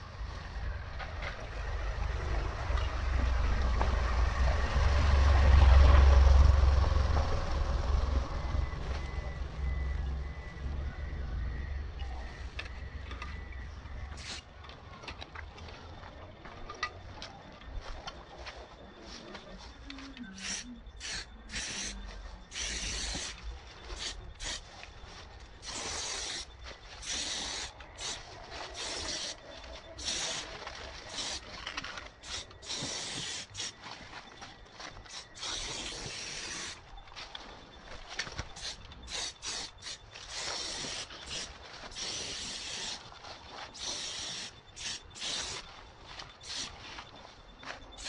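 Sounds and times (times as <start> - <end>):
spray paint can spraying: 14.2 - 14.4, 20.3 - 23.4, 24.0 - 24.6, 25.6 - 29.4, 30.0 - 30.5, 31.1 - 31.4, 32.2 - 33.7, 35.1 - 36.8, 38.6 - 43.0, 43.8 - 45.6, 46.4 - 46.7.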